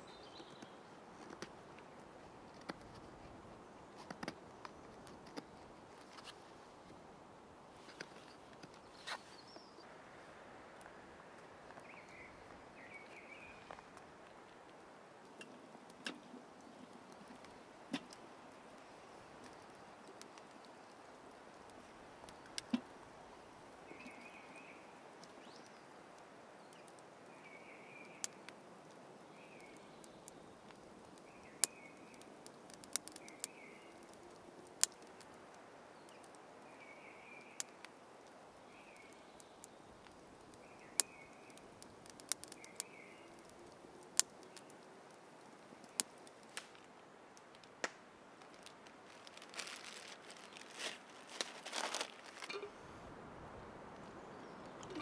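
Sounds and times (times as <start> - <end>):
steady hiss: 0.0 - 55.0
campfire crackling and popping: 0.2 - 55.0
bird calling: 54.2 - 55.0.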